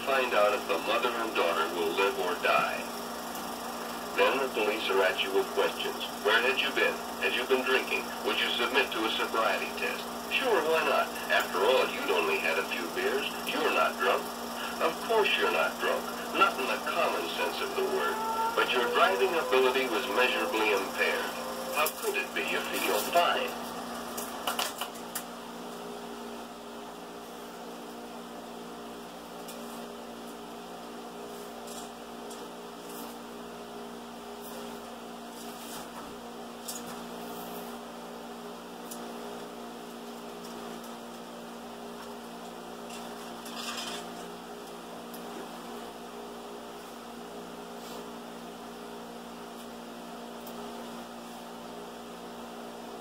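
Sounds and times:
film projector humming: 0.0s - 31.0s.

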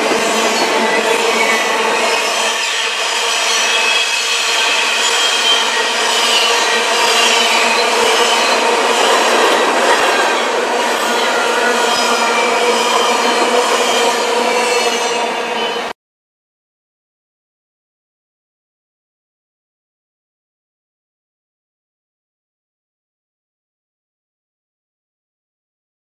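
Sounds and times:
steel wheels on rail: 0.0s - 15.9s
high-pitched wheel squealing: 0.2s - 15.9s.

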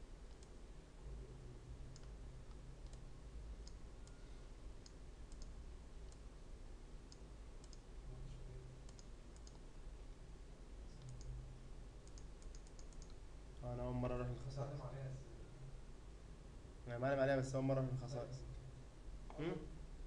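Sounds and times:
low steady hum: 0.0s - 20.0s
computer mouse clicks: 0.3s - 0.6s, 1.9s - 4.2s, 4.8s - 6.3s, 7.1s - 7.9s, 8.8s - 9.7s, 10.9s - 11.4s, 12.0s - 13.2s.

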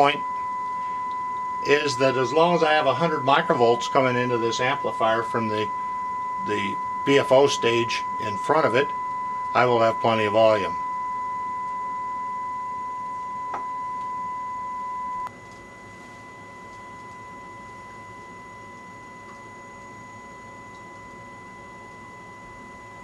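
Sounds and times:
faint higher second tone: 0.0s - 23.0s
sine-wave test tone: 0.0s - 23.0s.

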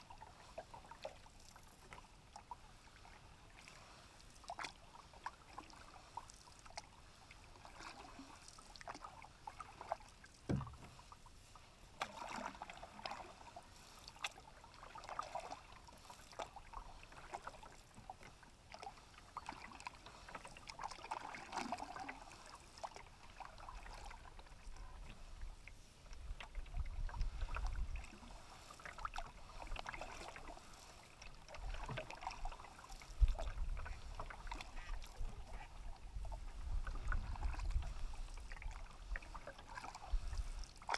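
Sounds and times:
paddle swishing through water: 0.0s - 40.9s
wind rumble on microphone: 24.7s - 28.6s, 33.1s - 39.4s, 40.0s - 40.6s.

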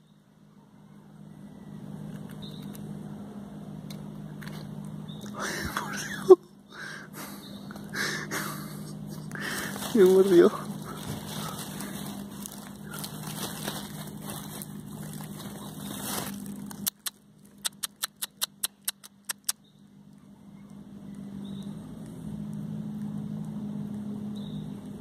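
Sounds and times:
low motor hum: 0.0s - 25.0s
sharp clicks: 16.7s - 19.6s.

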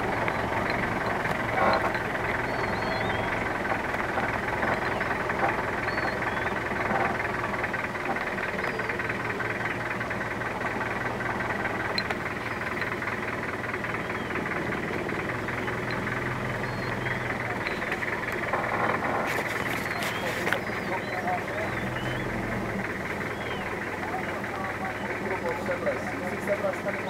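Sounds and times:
vehicle engine humming: 0.0s - 27.0s
faint high bird chirps: 2.3s - 3.5s, 4.6s - 6.7s, 8.4s - 9.8s, 13.8s - 14.5s, 15.3s - 18.2s, 19.7s - 22.5s, 23.2s - 23.9s.

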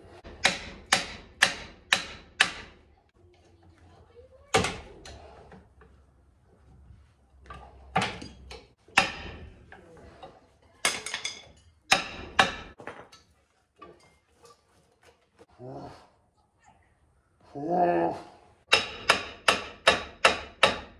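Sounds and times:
hammer striking metal drum: 8.9s - 9.5s, 18.7s - 20.9s.

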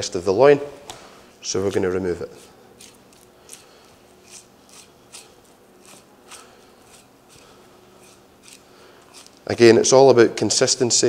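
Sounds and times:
knife scraping meat: 1.5s - 9.5s.

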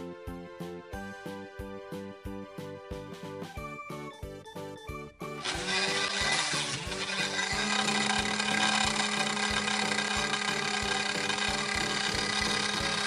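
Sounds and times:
background music with beat: 0.0s - 6.8s
small motor propeller whirr: 5.4s - 13.0s.

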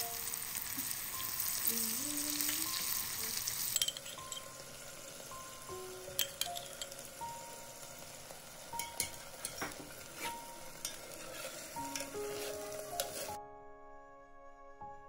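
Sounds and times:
food sizzling in pot: 0.0s - 13.4s
metal spoon clinking on pot: 3.6s - 4.6s, 6.1s - 7.1s, 8.8s - 13.3s.

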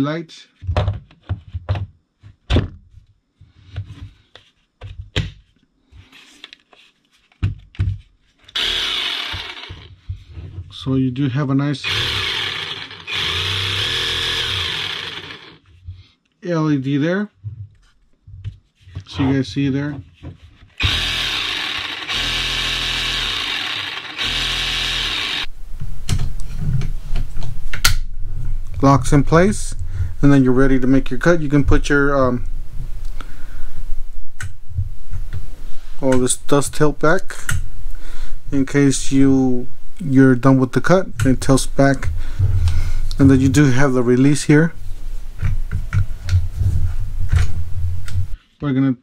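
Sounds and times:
saw motor whirring: 8.6s - 9.9s, 11.8s - 15.6s, 20.8s - 25.5s.

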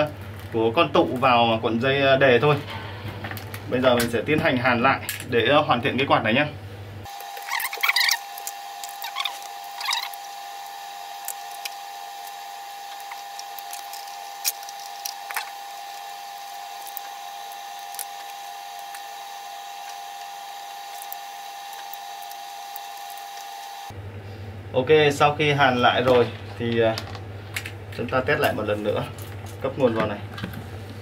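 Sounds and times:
high-pitched whine: 7.1s - 23.9s.

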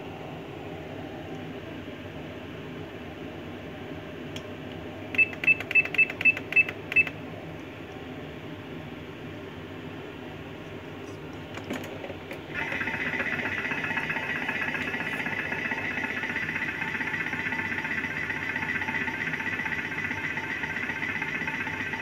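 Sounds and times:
kitchen appliance whining: 12.5s - 22.0s.

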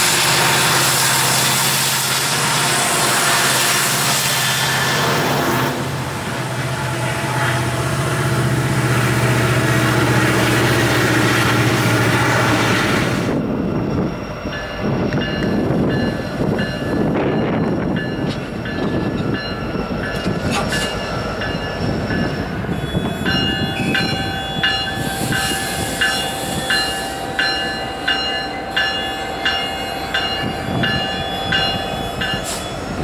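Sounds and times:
diesel locomotives rumbling: 0.0s - 33.0s
bell ringing: 14.4s - 33.0s.

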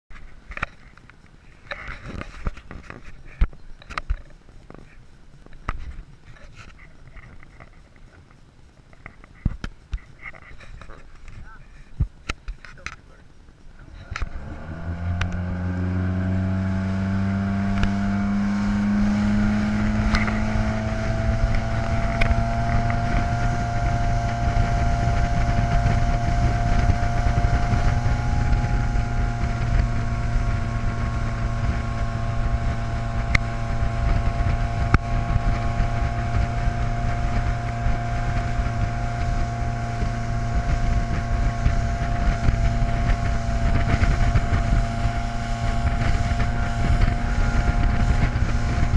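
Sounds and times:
motorboat engine throttling up: 13.4s - 48.9s
wind on microphone: 13.8s - 48.9s.

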